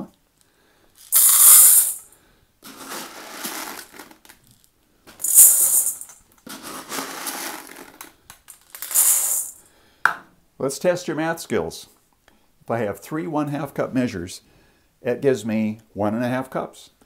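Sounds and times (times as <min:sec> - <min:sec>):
cup scooping beans from jar: 0:01.0 - 0:02.0, 0:02.6 - 0:04.4, 0:05.2 - 0:08.1, 0:08.7 - 0:09.6
beans pouring into steel bowl: 0:01.0 - 0:04.4, 0:05.2 - 0:09.6.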